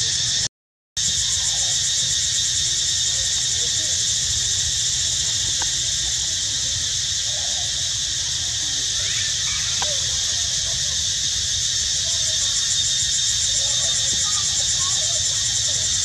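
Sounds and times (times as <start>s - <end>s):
insect chorus drone: 0.0s - 16.0s.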